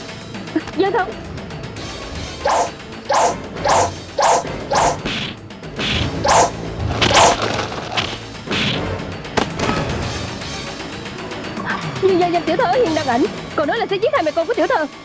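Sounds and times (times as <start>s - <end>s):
fight whooshes and whacks: 2.4s - 8.8s.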